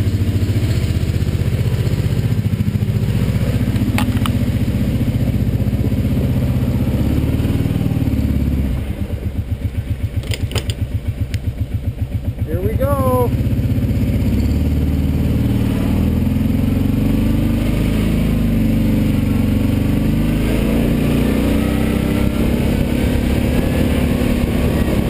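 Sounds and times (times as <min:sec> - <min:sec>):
atv engine running: 0:00.0 - 0:25.0
short clattering clicks: 0:10.2 - 0:11.4.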